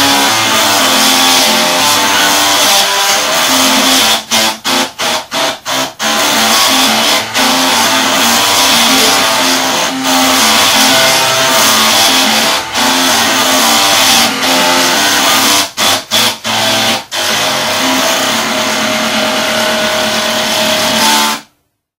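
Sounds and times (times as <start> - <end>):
floppy drives playing buzzy music: 0.0 - 21.6.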